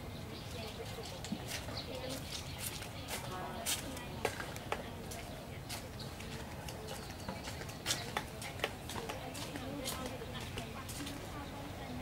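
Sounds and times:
bird calls: 0.0 - 12.0.

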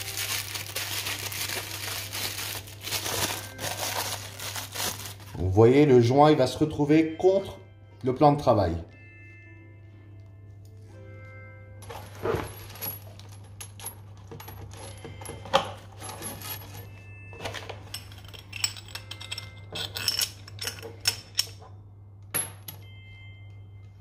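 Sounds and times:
metal parts clinking: 0.0 - 5.3, 11.8 - 21.8.

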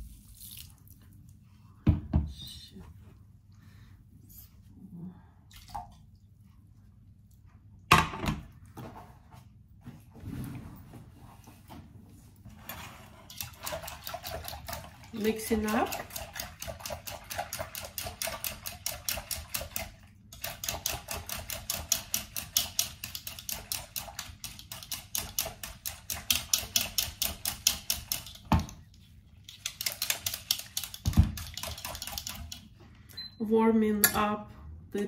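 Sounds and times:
whisk clicking in bowl: 15.6 - 28.7, 29.5 - 32.7.

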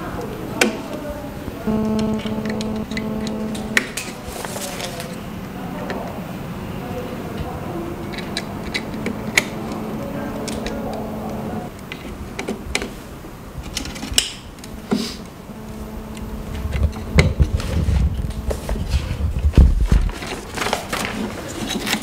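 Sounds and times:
low steady hum: 1.7 - 4.0, 8.0 - 11.8, 14.6 - 19.6.

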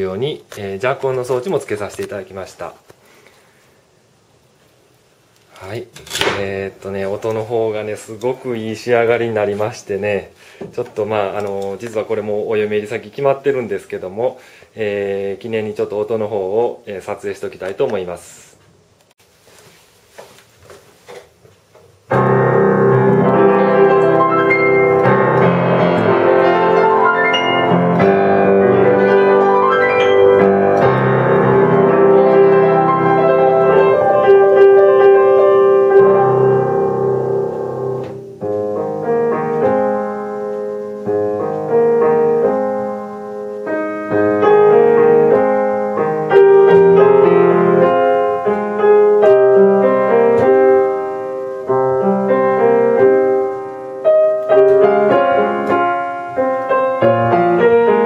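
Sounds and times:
upright piano playing: 5.7 - 14.2, 22.1 - 58.0.

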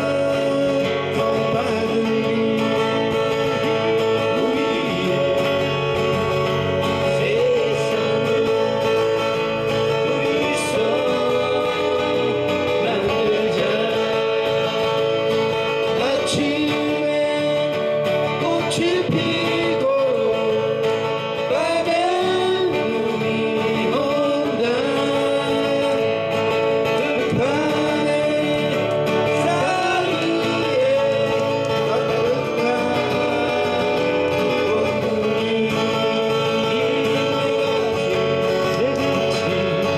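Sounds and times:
acoustic guitars strummed and picked: 0.0 - 39.9
man singing a ballad: 0.0 - 39.9.

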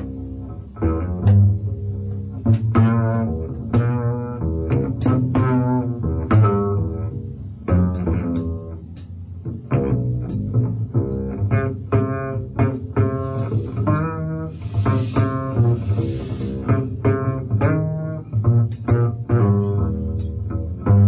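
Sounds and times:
double bass plucked: 0.0 - 21.0
hiss-like wash: 14.5 - 16.7.

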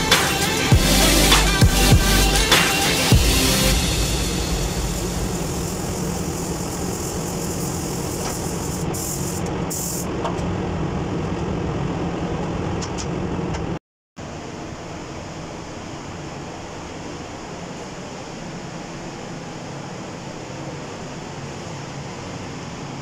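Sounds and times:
rush of booth airflow: 0.0 - 13.5
paint spray gun hissing: 3.7 - 10.1.

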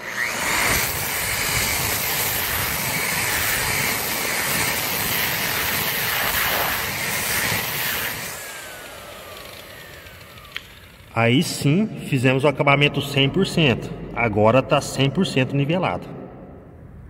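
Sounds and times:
electric sander grinding concrete: 0.0 - 11.2
motor winding down whine: 0.0 - 11.8.

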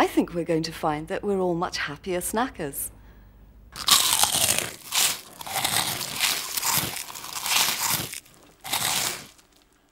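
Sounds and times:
crunchy snack being chewed: 3.8 - 9.9.

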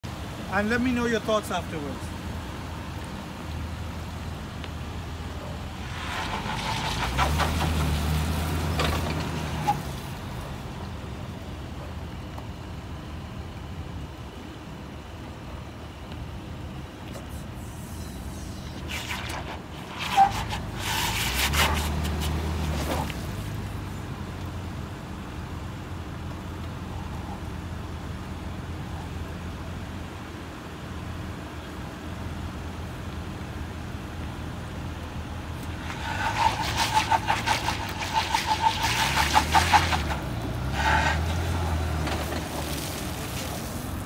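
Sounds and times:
truck engine pulling under load: 2.5 - 11.6, 18.2 - 26.6, 34.4 - 44.0.

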